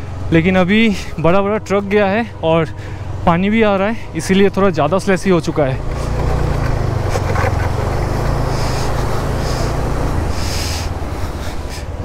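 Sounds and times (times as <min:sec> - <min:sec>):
motorcycle engine running: 0:00.0 - 0:12.0
dense rushing noise: 0:05.8 - 0:12.0
short hisses: 0:08.4 - 0:12.0.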